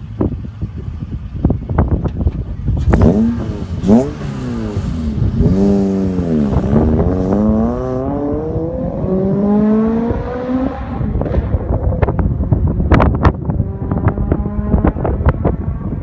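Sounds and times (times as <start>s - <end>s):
car accelerating through gears: 2.8s - 12.2s, 13.5s - 15.8s.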